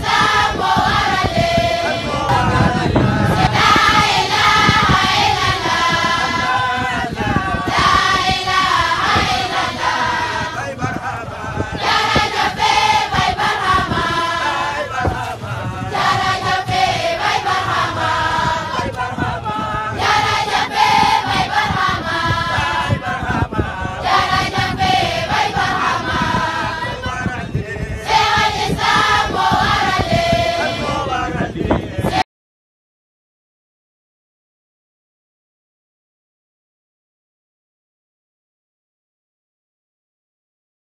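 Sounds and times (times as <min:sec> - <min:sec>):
group chanting in unison: 0:00.0 - 0:32.2.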